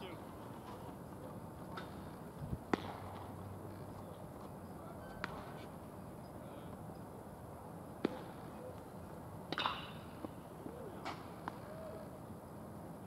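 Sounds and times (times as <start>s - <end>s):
baseball bat cracks: 2.7s - 3.4s, 9.5s - 10.4s, 11.0s - 11.6s.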